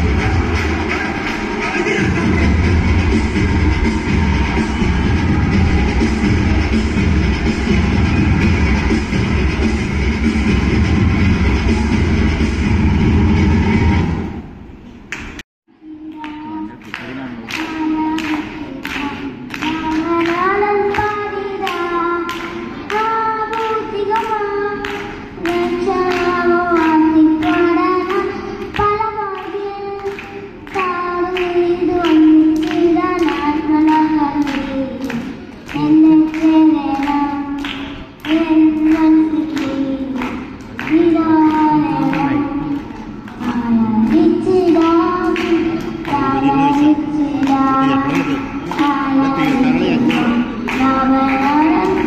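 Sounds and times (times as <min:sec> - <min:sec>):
boy singing through microphone: 0:15.7 - 0:52.0.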